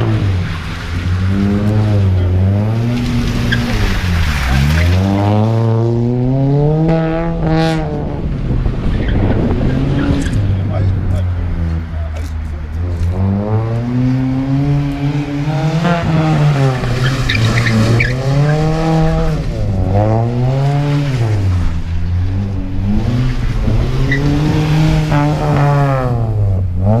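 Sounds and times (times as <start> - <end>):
car engine revving: 0.0 - 27.0
tyre squeal: 17.0 - 18.6.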